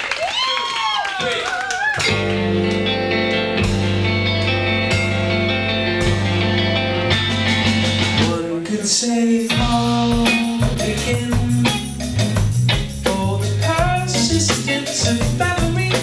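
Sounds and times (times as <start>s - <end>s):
live band playing: 2.0s - 8.6s, 9.5s - 16.0s
bass: 2.0s - 16.0s.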